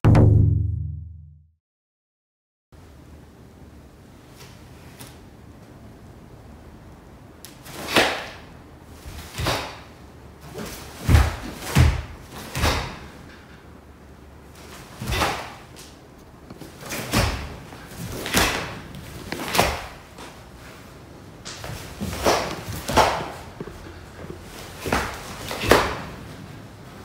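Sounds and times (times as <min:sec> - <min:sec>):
bare feet thudding on wood: 0:21.5 - 0:26.2.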